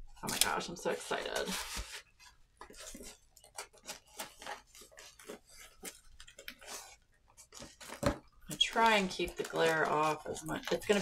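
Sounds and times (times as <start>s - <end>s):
crackles of plastic film unrolling: 0.0s - 11.0s.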